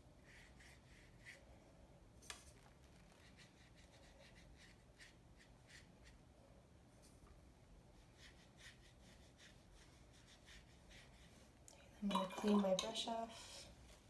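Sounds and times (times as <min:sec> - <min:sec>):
paintbrush strokes on paper: 0:00.2 - 0:01.5, 0:02.4 - 0:06.3, 0:07.8 - 0:11.6.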